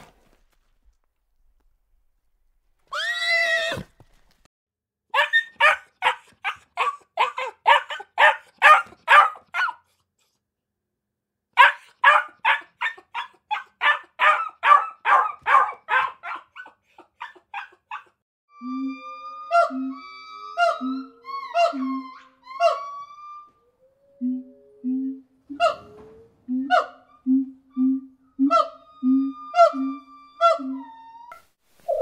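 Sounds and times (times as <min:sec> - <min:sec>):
puppies yapping: 0:05.2 - 0:09.8, 0:20.4 - 0:23.2.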